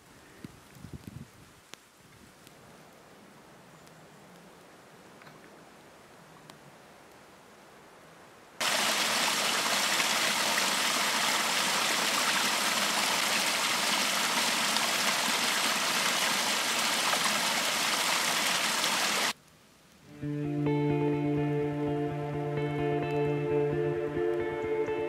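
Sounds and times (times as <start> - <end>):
faint hiss: 0.0 - 20.2
stream water rushing and splashing: 8.6 - 19.4.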